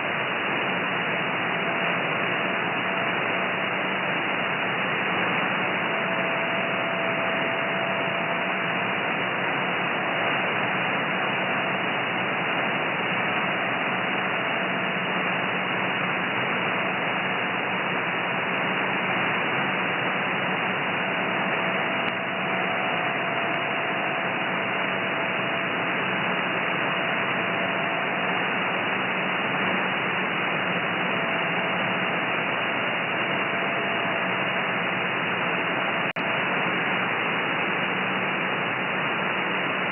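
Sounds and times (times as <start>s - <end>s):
faint steady radio tone: 0.0s - 39.9s
shortwave radio hiss: 0.0s - 39.9s.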